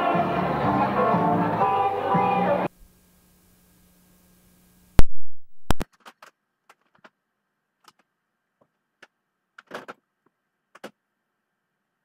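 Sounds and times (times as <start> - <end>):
tape hiss: 0.0 - 5.8
loud audio pop: 5.0 - 5.8.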